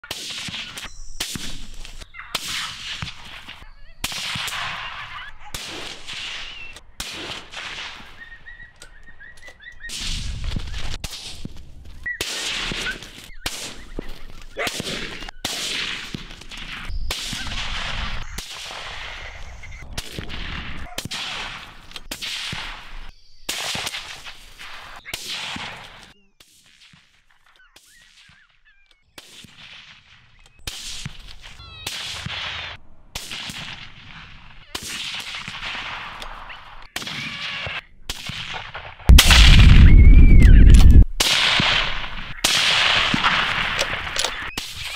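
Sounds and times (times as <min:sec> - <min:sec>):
rifle shots echoing: 0:00.0 - 0:08.2, 0:14.6 - 0:26.0, 0:29.2 - 0:44.9
loud sustained rumbling: 0:39.1 - 0:41.0.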